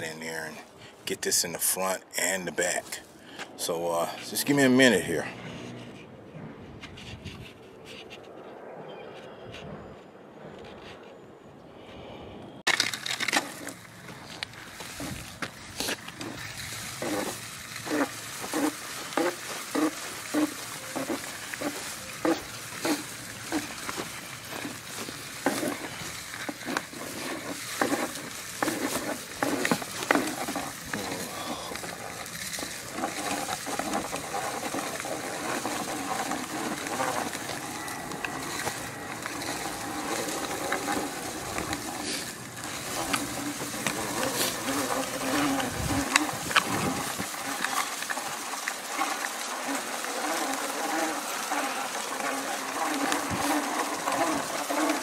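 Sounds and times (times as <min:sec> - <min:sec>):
granules scattering: 0:12.7 - 0:14.8
spreader spinner rattling: 0:12.7 - 0:55.0.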